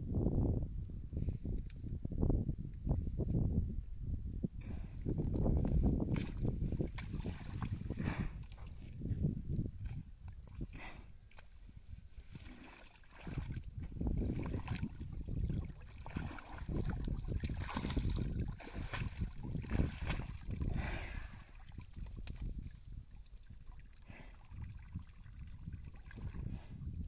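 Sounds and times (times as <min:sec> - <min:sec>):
water buffalo splashing in muddy water: 0:05.0 - 0:08.9, 0:09.8 - 0:26.6.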